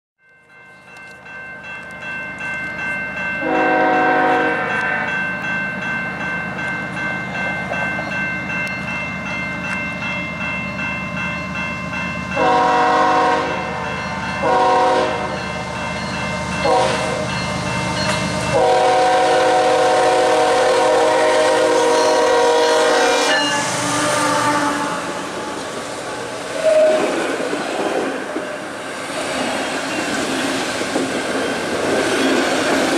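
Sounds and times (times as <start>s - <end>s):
crossing bell ringing: 0.2s - 26.8s, 27.4s - 32.7s
locomotive air horn blasts: 3.4s - 5.2s, 12.4s - 13.8s, 14.4s - 15.4s, 16.6s - 17.2s, 18.5s - 25.6s.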